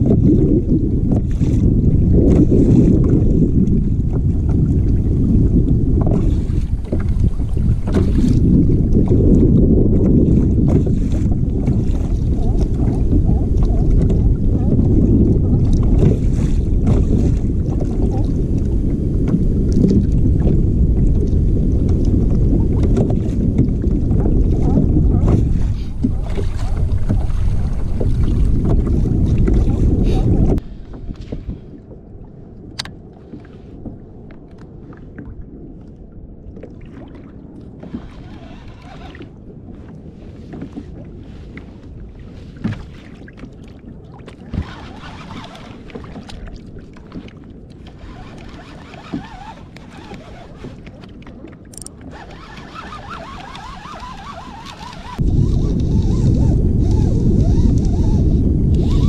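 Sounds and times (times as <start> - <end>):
wind buffeting microphone: 0.0 - 59.0
fishing reel being cranked: 44.5 - 45.7, 48.0 - 50.6, 51.8 - 59.0
fishing gear clicks and knocks: 51.7 - 52.1.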